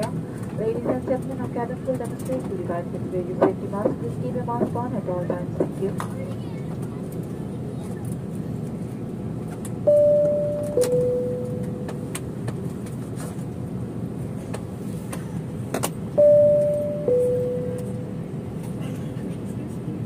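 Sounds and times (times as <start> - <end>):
airplane cabin hum: 0.0 - 20.0
two-tone cabin chime: 9.8 - 12.0, 16.2 - 18.2.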